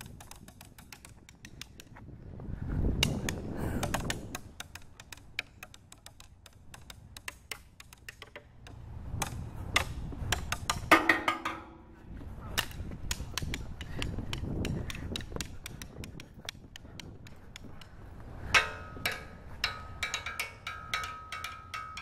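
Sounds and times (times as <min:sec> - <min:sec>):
wooden stick tapping: 0:00.0 - 0:02.0, 0:03.0 - 0:11.9, 0:12.6 - 0:22.0
wind on microphone: 0:00.0 - 0:04.8, 0:08.8 - 0:11.0, 0:11.7 - 0:21.3.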